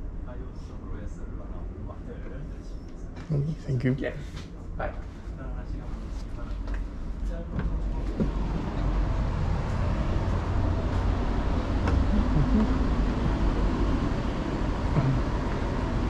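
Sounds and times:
traffic rumble: 0:05.5 - 0:16.0.

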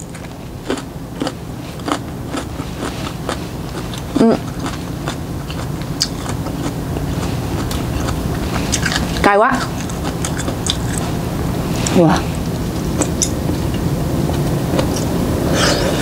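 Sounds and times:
steady low hum: 0:00.0 - 0:16.0
chewing with wet mouth clicks: 0:00.2 - 0:09.2, 0:09.8 - 0:11.1, 0:13.0 - 0:15.1.

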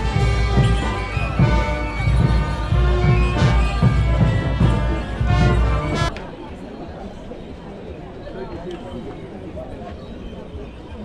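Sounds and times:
brass band playing: 0:00.0 - 0:06.2
percussion hits: 0:00.0 - 0:06.2.

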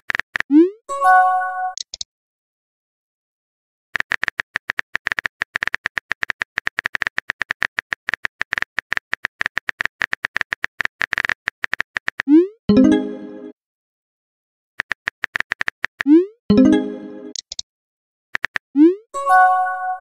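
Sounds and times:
phone keyboard typing clicks: 0:01.7 - 0:02.1, 0:04.0 - 0:12.3, 0:14.8 - 0:16.1, 0:17.3 - 0:17.6, 0:18.4 - 0:18.6.

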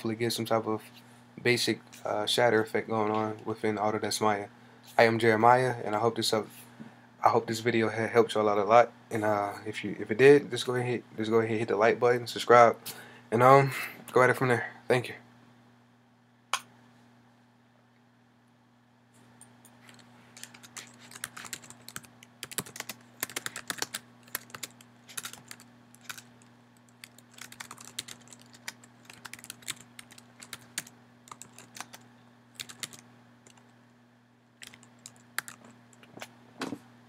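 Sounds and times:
faint low hum: 0:00.0 - 0:37.0
typing on computer keyboard: 0:19.9 - 0:26.3, 0:26.9 - 0:32.0, 0:32.6 - 0:33.6, 0:34.6 - 0:35.7.

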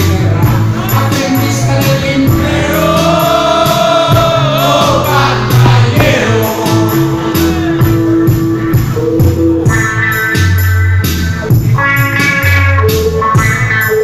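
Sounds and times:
man singing into a microphone: 0:00.0 - 0:07.9.

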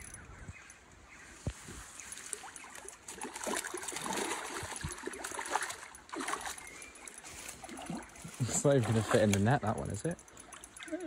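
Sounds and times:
fish splashing in water: 0:02.2 - 0:09.6.

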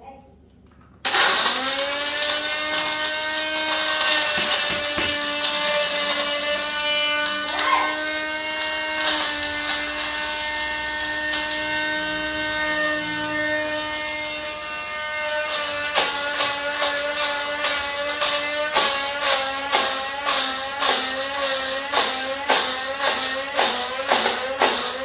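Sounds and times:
blender motor whining: 0:01.0 - 0:25.0.

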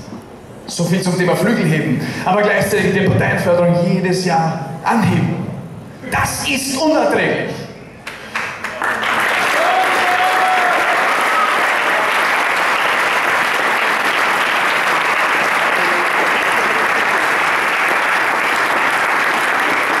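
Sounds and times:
large audience applauding: 0:08.0 - 0:20.0.

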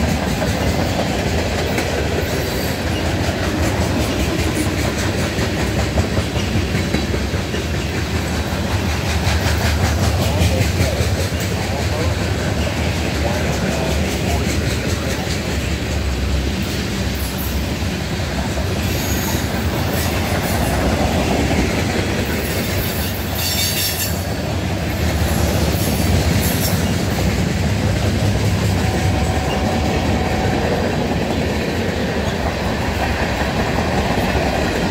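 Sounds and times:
freight train wheels rumbling: 0:00.0 - 0:34.9
high squeal from train cars: 0:00.7 - 0:05.2, 0:16.6 - 0:17.8, 0:18.7 - 0:21.0, 0:22.3 - 0:27.3, 0:28.5 - 0:31.0.

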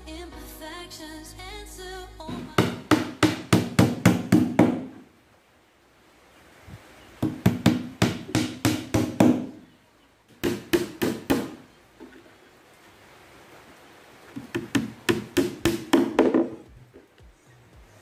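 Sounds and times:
hammer striking nails into wood: 0:02.3 - 0:05.0, 0:07.2 - 0:09.6, 0:10.4 - 0:11.6, 0:14.4 - 0:16.6.

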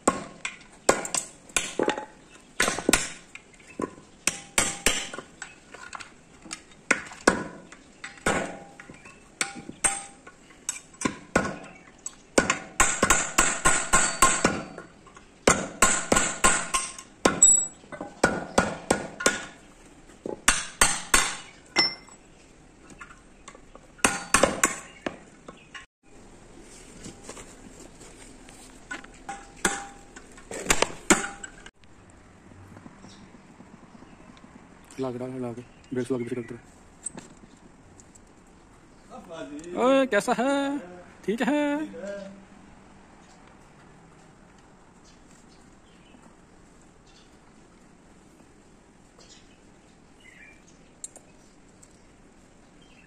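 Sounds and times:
hammer striking steel: 0:04.3 - 0:05.2, 0:07.3 - 0:10.3, 0:12.4 - 0:14.8, 0:15.5 - 0:19.6, 0:20.4 - 0:22.1, 0:24.0 - 0:24.9, 0:29.3 - 0:31.7.

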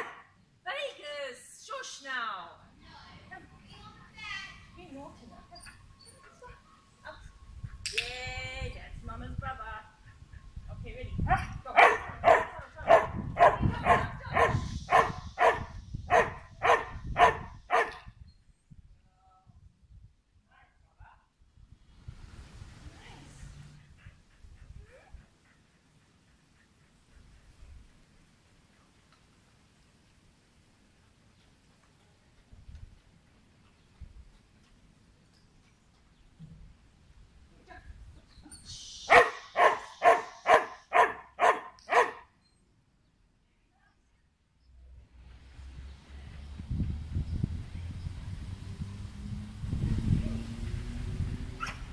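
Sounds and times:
small dog barking: 0:00.0 - 0:00.2, 0:11.3 - 0:18.0, 0:39.1 - 0:42.3, 0:51.6 - 0:51.8.

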